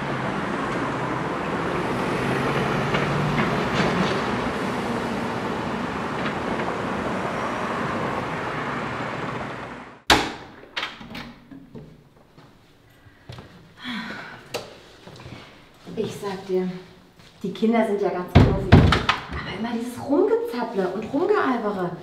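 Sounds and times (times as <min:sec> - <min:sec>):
passing road traffic: 0:00.0 - 0:10.1
door clicks and knocks: 0:10.1 - 0:11.9, 0:18.4 - 0:19.5.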